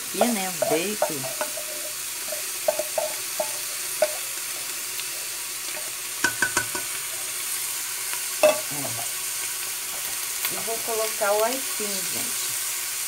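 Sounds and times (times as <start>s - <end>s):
meat sizzling in a pot: 0.0s - 13.0s
spoon and pan knocking pot: 0.2s - 4.4s, 5.7s - 7.1s, 8.4s - 9.1s.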